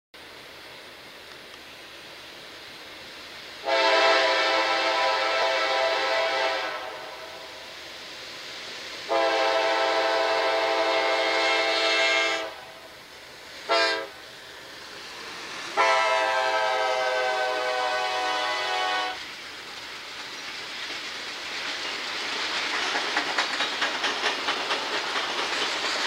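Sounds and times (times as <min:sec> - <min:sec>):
train rumbling: 0:00.2 - 0:26.0
locomotive horn blasts: 0:03.6 - 0:07.3, 0:09.1 - 0:12.7, 0:13.7 - 0:14.2, 0:15.8 - 0:19.2.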